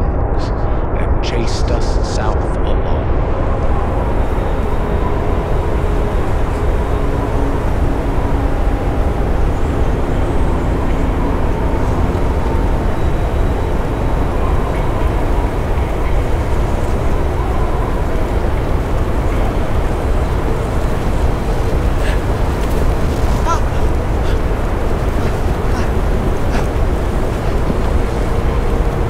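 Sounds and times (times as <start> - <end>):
blizzard wind blowing: 0.0 - 29.0
faint wavering tones: 3.3 - 29.0.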